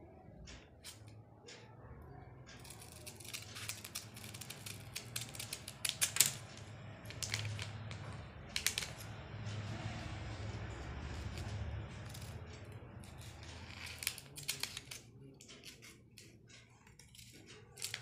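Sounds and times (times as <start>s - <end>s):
scissors snipping paper: 2.6s - 9.1s, 10.4s - 18.0s.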